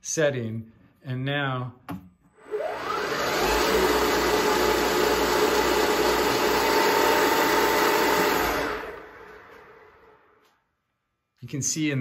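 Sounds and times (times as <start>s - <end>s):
milling machine spindle whining: 2.4s - 10.2s.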